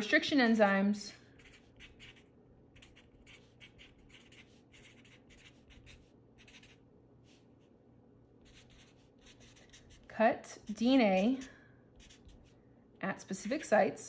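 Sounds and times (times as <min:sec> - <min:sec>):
marker scratching on paper: 0:01.3 - 0:07.5, 0:08.4 - 0:12.6, 0:13.3 - 0:13.8.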